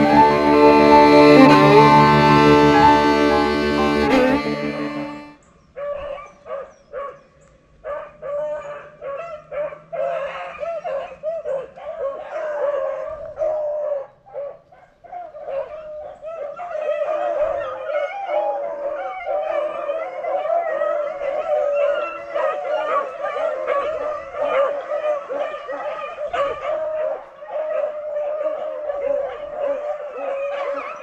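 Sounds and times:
dogs baying: 15.2s - 31.0s.

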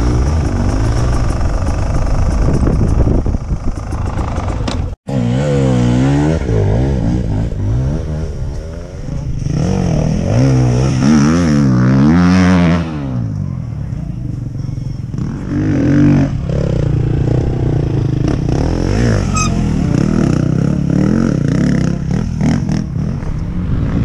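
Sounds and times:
dirt bike engine running: 0.0s - 24.0s
motorcycle revving past: 3.8s - 13.4s, 15.1s - 24.0s.

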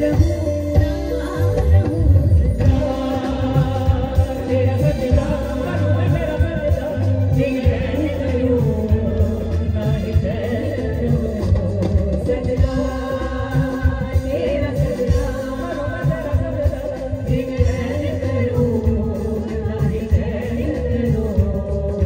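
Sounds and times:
live band playing: 0.0s - 22.0s
woman singing into a microphone: 0.0s - 22.0s.

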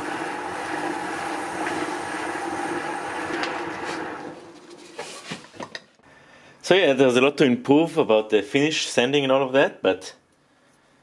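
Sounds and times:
lathe motor humming: 0.0s - 5.0s
paper towel rubbing spinning wood: 0.0s - 5.6s.

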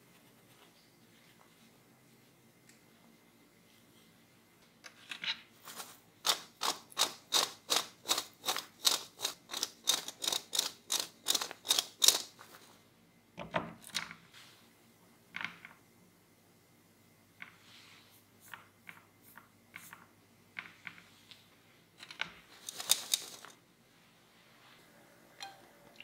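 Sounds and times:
potato sticks rattling in wire basket: 5.7s - 12.6s, 22.5s - 23.6s.

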